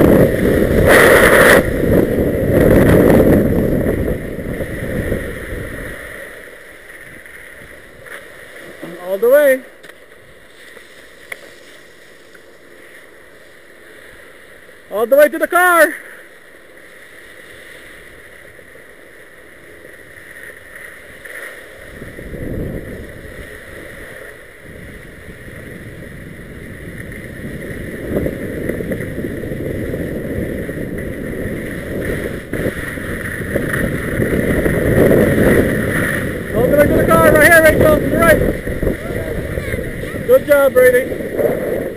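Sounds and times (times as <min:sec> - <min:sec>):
wind on microphone: 0:00.0 - 0:06.3, 0:21.8 - 0:41.9
skis sliding on slushy snow: 0:00.0 - 0:41.9.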